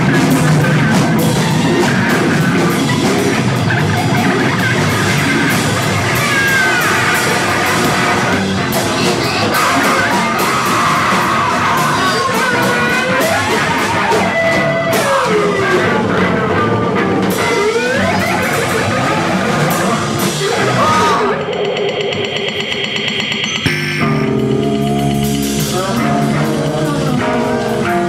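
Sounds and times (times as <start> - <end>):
buzzing drone: 21.4 - 26.8.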